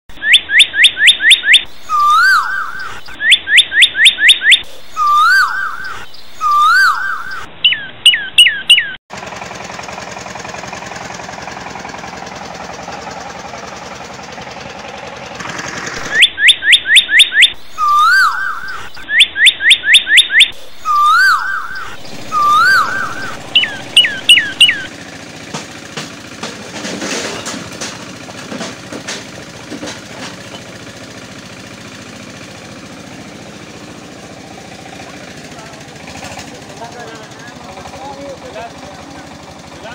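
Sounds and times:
bird-like chirping: 0.1 - 9.0, 16.0 - 24.9
steady mechanical noise: 1.5 - 7.6, 9.1 - 19.4, 20.1 - 39.9.

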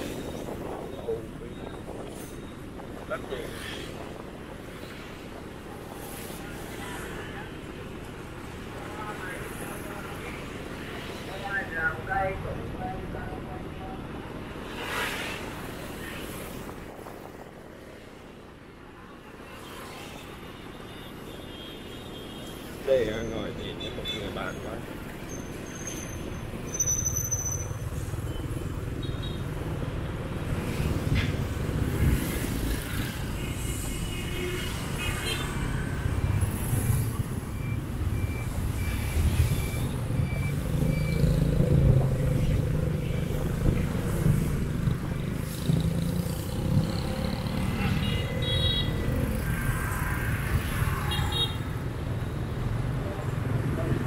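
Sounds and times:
road rumble: 23.0 - 54.0
motorbike and car engines: 35.6 - 54.0.

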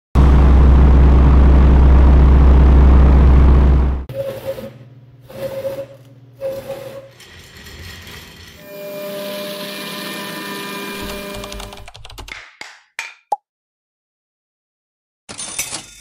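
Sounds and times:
low engine rumble: 0.2 - 4.1
short squealing scrapes: 4.1 - 10.6.

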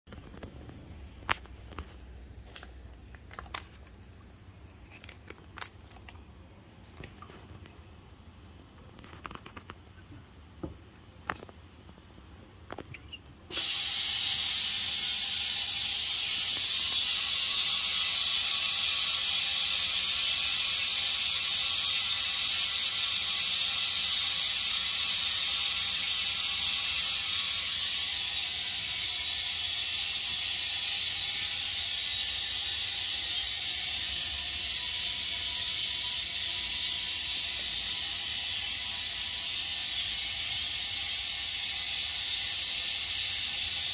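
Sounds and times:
loud air hiss: 13.5 - 43.9.

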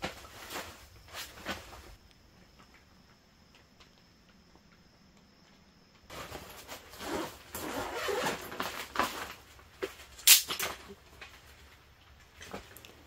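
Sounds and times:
backpack fabric rustling: 6.1 - 9.5.

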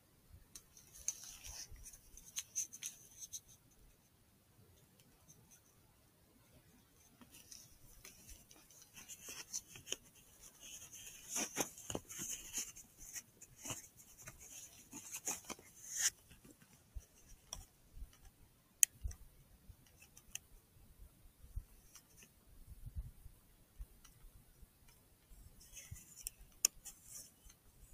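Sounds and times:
handling clicks and rustles: 0.5 - 3.9, 6.6 - 19.2.

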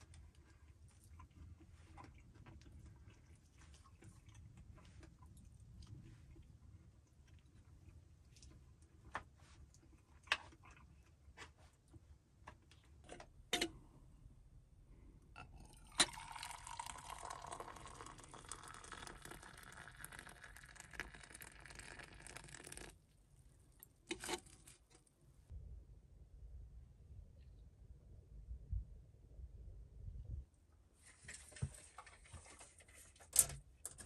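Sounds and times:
liquid pouring into container: 15.4 - 23.0.

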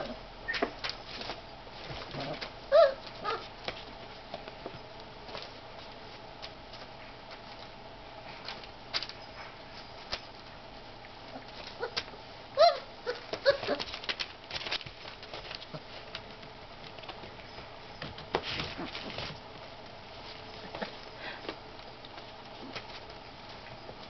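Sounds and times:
scratching and rustling: 0.0 - 24.0
high puppy cries: 2.7 - 3.5, 11.7 - 14.0
puppy claws clicking and scrabbling: 8.4 - 12.2, 13.1 - 24.0.

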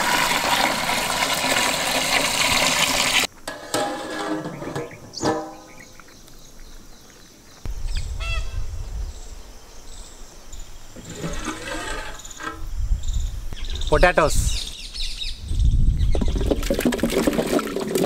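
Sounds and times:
birds calling: 4.4 - 16.4
wind rumbling on microphone: 7.7 - 17.6.

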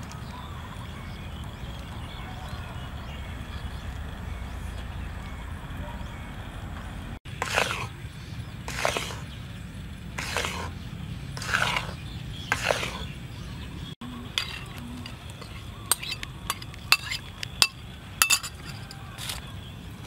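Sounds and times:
metal ladle scraping wok: 7.4 - 7.9, 8.7 - 9.2, 10.2 - 10.7, 11.4 - 13.1, 14.3 - 19.4
spoon clinking against wok: 14.3 - 19.0.

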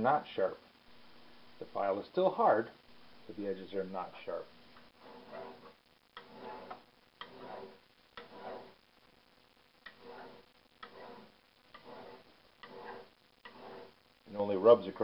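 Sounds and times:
hand file skidding on steel: 4.9 - 8.8, 9.8 - 14.0.

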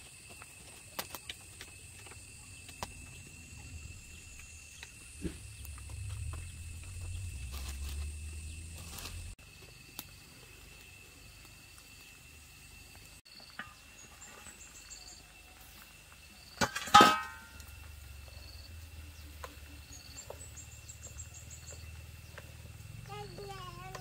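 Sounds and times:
low rumble of fire and steam: 0.1 - 24.0
steady high whine: 1.4 - 9.4
metal lid clanking: 16.6 - 17.6.

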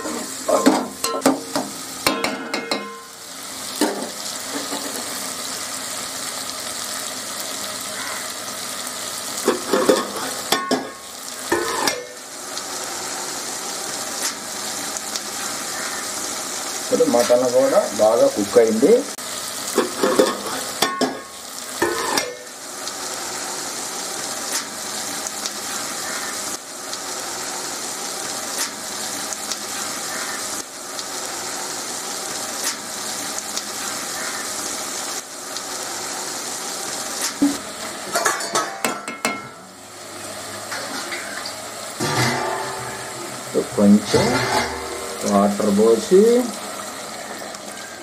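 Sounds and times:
pot and spatula clattering: 0.0 - 3.2, 3.8 - 5.1, 9.4 - 12.2, 19.7 - 22.5, 37.4 - 39.6, 42.0 - 45.7
food sizzling in a pan: 0.0 - 48.0
metal spatula scraping a pan: 11.5 - 12.2, 42.0 - 45.7.

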